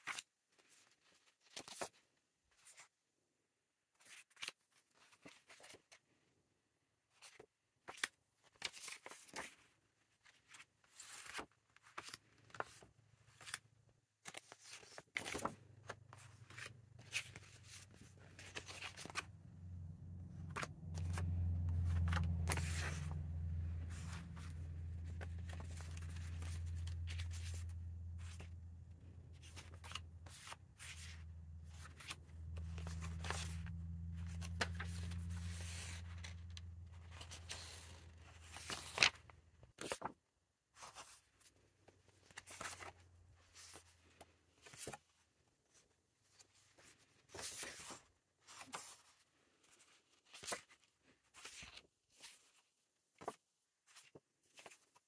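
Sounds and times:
paper rustling: 14.2 - 40.2
low steady hum: 16.7 - 39.1.

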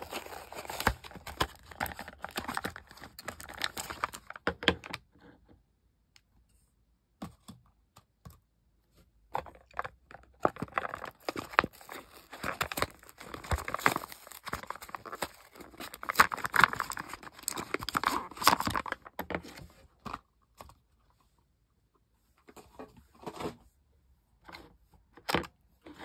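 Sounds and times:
cardboard box tearing and scraping: 0.0 - 2.6
plastic pouch crinkling: 0.0 - 4.5, 10.5 - 19.1.

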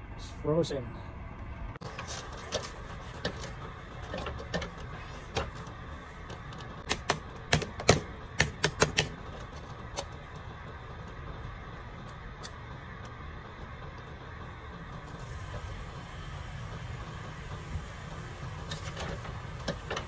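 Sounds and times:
ice chipped from plastic pipes: 1.9 - 11.3.

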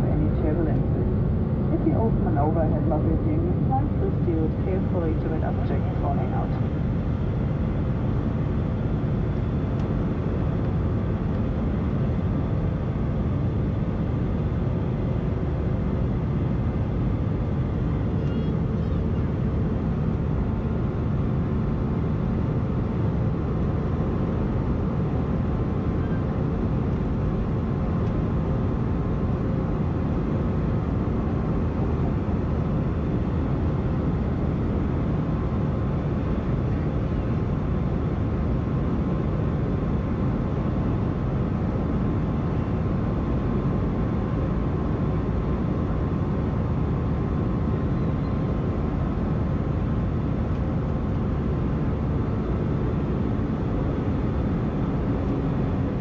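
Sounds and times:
faint steady tones: 0.0 - 6.7
jet engine low rumble: 0.0 - 56.0.

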